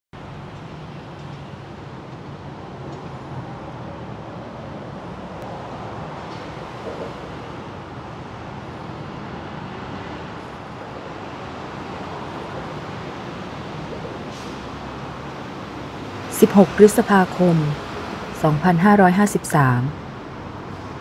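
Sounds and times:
road traffic rumble: 0.2 - 21.0.

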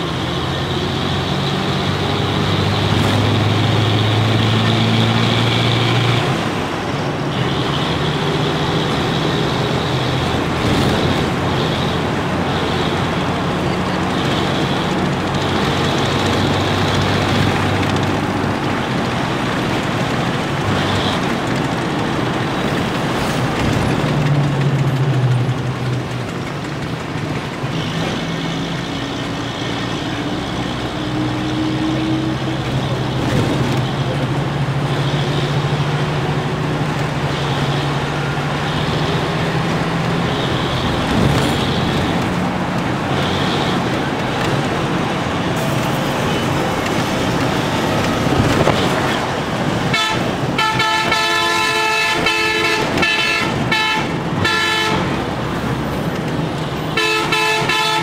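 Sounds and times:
bus engine drone: 0.0 - 58.0
road noise: 0.0 - 58.0
vehicle horn honking: 49.9 - 55.2, 56.8 - 58.0.

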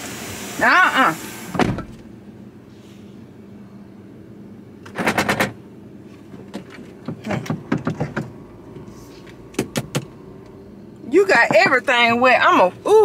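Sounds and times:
low car hum: 0.0 - 13.0
clicks and knocks in car cabin: 4.8 - 10.6, 11.4 - 12.1.

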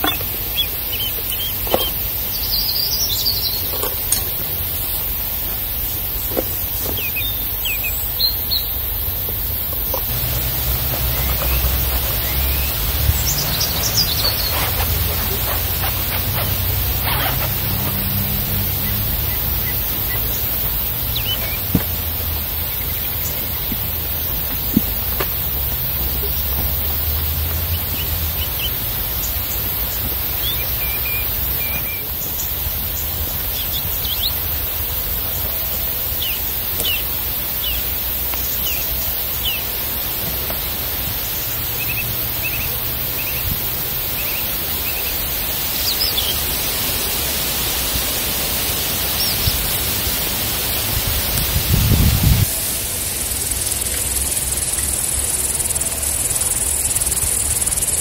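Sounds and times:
bird chirps: 0.0 - 4.4, 9.8 - 24.9
steady high hiss: 0.0 - 58.0
wind rumble on microphone: 50.4 - 52.7.

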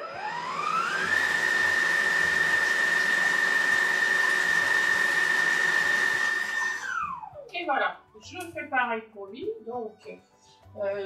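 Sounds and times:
food processor motor whining: 0.0 - 7.5.

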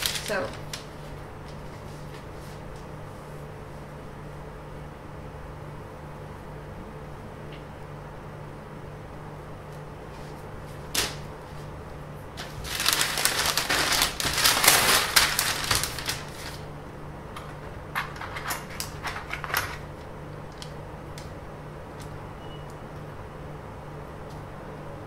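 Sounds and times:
paper rustling and crinkling: 0.0 - 2.7, 10.2 - 11.7, 12.4 - 16.7
low steady hum: 0.0 - 25.0.

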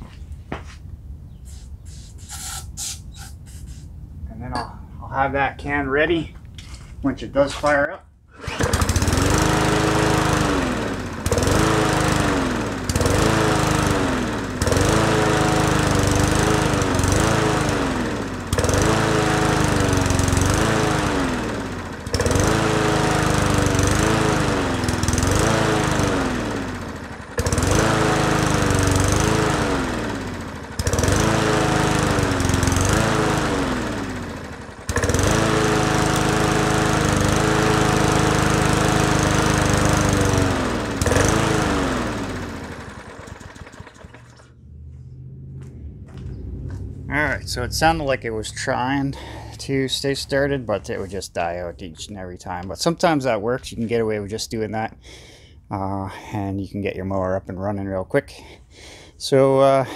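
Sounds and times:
push-mower engine surging: 8.3 - 52.1.

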